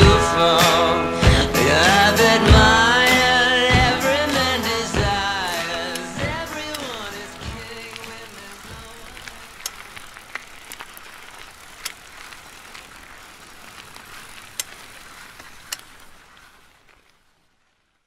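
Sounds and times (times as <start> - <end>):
bicycle tyres rolling on rough trail: 0.0 - 18.0
sharp clicks: 3.8 - 12.8.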